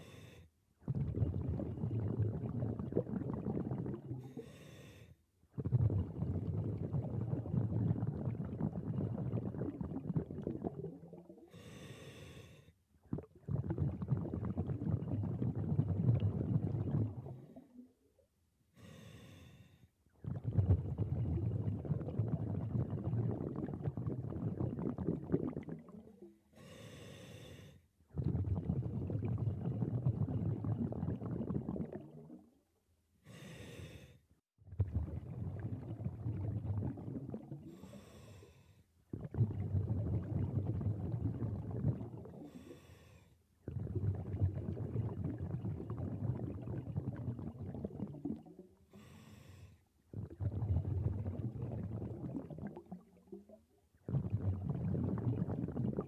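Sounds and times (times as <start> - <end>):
exhaled bubbles rumbling: 0.8 - 4.5, 5.5 - 11.5, 13.0 - 18.1, 20.1 - 26.4, 28.1 - 32.6, 34.6 - 37.8, 39.1 - 42.7, 43.6 - 48.9, 50.1 - 56.0.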